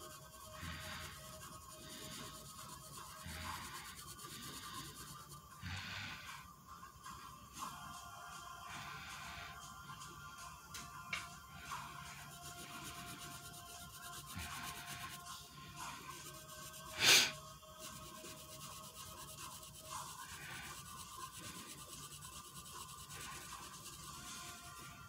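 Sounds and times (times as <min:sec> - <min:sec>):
felt-tip marker scratching on paper: 0:00.0 - 0:06.4, 0:11.5 - 0:25.0.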